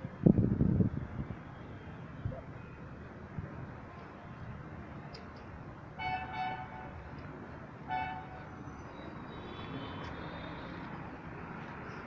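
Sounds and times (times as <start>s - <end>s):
street noise hiss: 0.0s - 12.0s
vehicle horn honking: 7.9s - 8.4s.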